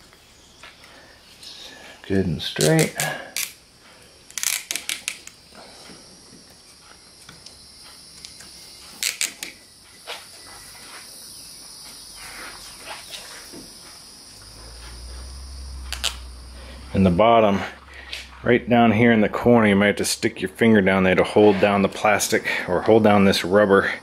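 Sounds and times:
low rumble: 14.4s - 20.9s.

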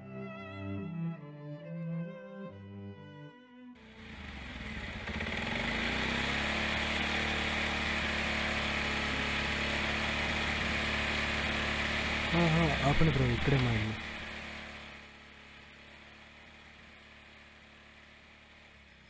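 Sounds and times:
motorcycle engine running: 3.8s - 19.0s.

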